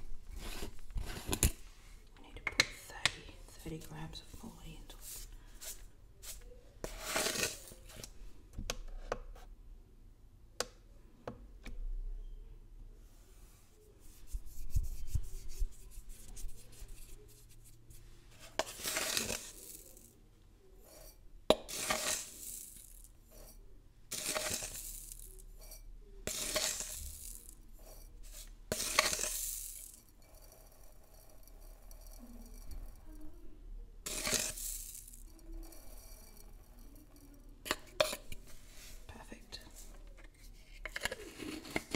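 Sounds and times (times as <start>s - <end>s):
spoon scraping granules in jar: 0.4s - 1.5s, 3.6s - 8.0s, 18.4s - 20.1s, 20.8s - 33.2s, 34.0s - 41.9s.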